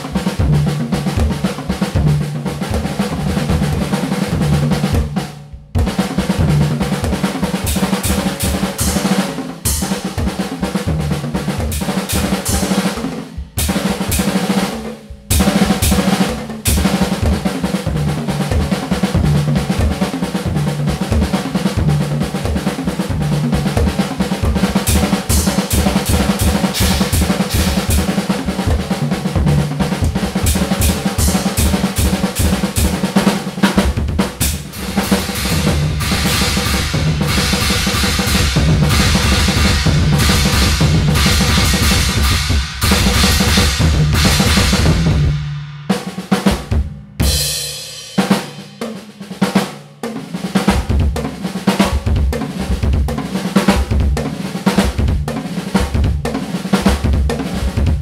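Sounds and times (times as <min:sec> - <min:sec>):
fast metal drumming: 0:00.0 - 0:58.0
rapid bass drum: 0:00.0 - 0:58.0
cymbal crashes: 0:24.9 - 0:28.3, 0:34.4 - 0:45.9.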